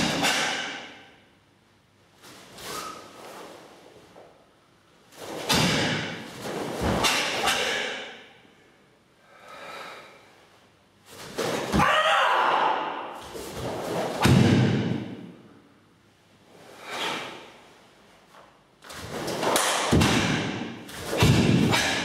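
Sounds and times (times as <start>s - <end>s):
bare feet thumping on mats: 19.0s - 21.9s.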